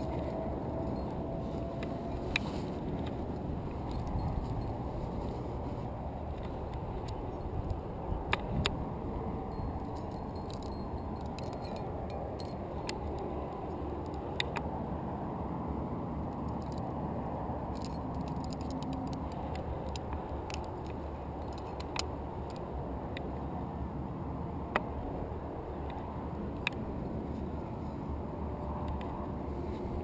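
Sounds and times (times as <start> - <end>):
carabiners clinking and jangling: 0.0 - 14.7, 16.3 - 23.5.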